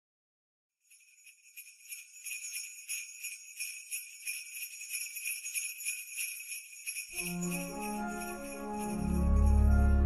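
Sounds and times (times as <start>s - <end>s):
sleigh bells shaken: 0.8s - 10.0s.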